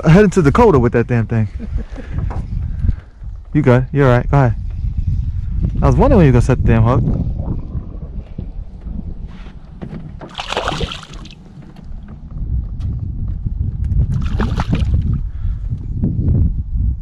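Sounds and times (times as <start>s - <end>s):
steady low rumble: 0.0s - 17.0s
water sloshing against boat: 8.6s - 12.1s
water splash: 10.2s - 11.5s, 14.1s - 15.0s.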